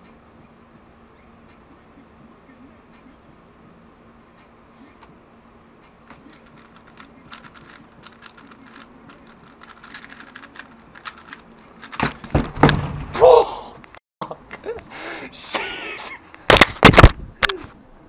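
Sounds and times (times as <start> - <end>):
plastic cube clicking and clacking: 6.1 - 12.2
loud knocks: 12.0 - 13.2.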